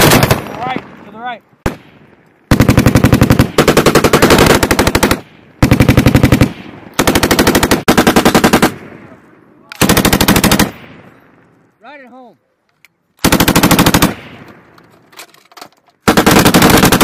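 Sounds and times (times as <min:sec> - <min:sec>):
machine gun bursts: 0:13.2 - 0:14.2, 0:16.0 - 0:17.0.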